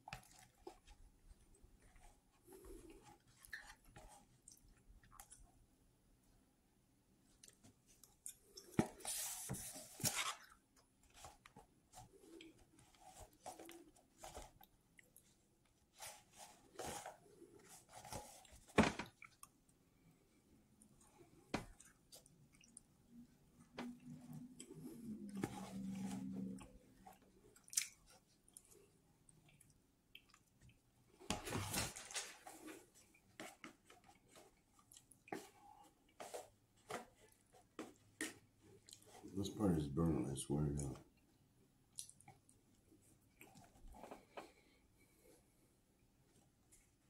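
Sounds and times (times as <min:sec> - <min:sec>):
man chewing: 0:26.4 - 0:30.8, 0:32.6 - 0:36.2, 0:37.3 - 0:39.1, 0:41.9 - 0:42.6.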